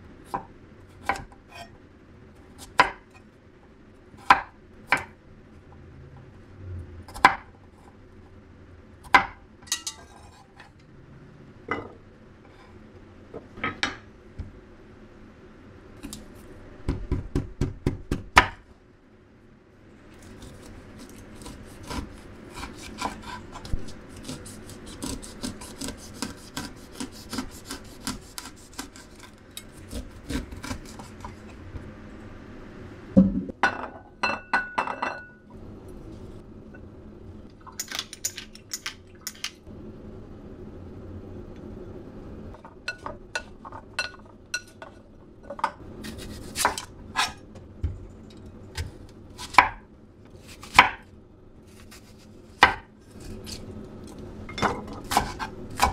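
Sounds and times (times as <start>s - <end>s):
knife rasping corn off cob: 20.2s - 31.5s
knife slicing onion on board: 20.2s - 31.6s, 46.0s - 47.4s, 48.7s - 49.8s, 50.4s - 51.0s, 51.7s - 55.9s.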